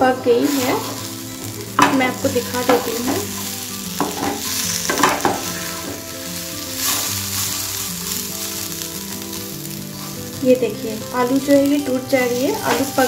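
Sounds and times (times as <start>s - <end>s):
potatoes sizzling in oil: 0.0s - 13.0s
wooden spatula scraping pan: 0.4s - 9.3s.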